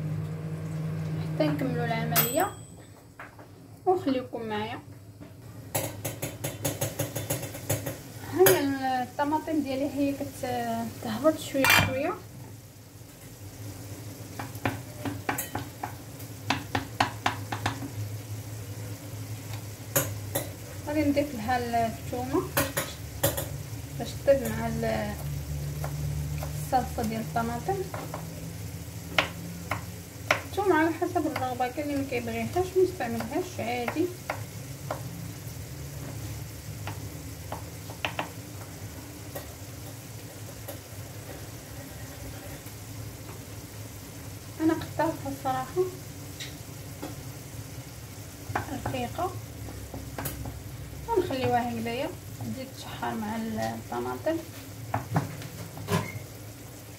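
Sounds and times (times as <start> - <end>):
tomatoes sizzling in oil: 0.0 - 56.9
wooden spoon knocking pan: 14.4 - 17.9, 36.8 - 38.4.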